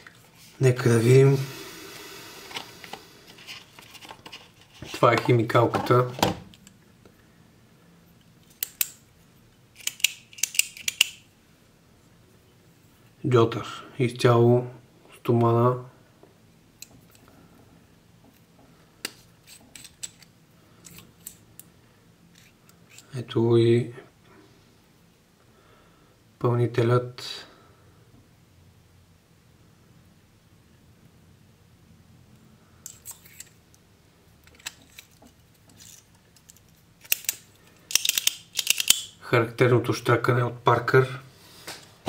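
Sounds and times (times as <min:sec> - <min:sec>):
metallic pen clicks: 0:09.8 - 0:11.2, 0:37.0 - 0:39.1.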